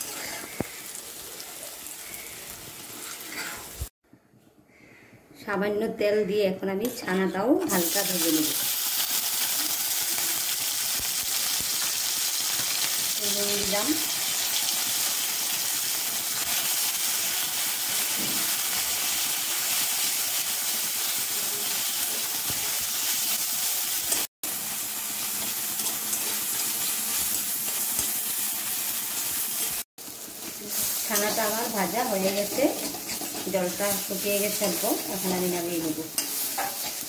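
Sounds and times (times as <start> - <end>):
cheese sizzling in oil: 0.0 - 3.9, 7.7 - 37.0
spatula stirring in pan: 29.6 - 35.3, 36.2 - 37.0.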